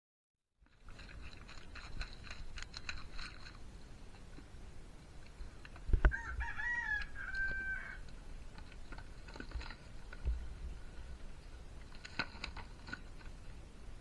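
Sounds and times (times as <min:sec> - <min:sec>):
rooster crowing: 0:06.0 - 0:08.0.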